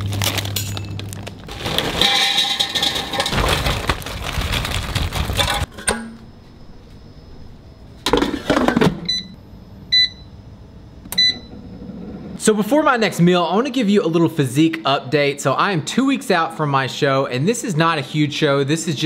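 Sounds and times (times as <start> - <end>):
frozen broccoli rattling into basket: 0.0 - 5.7
touch panel beeps: 9.9 - 10.3, 11.2 - 11.5.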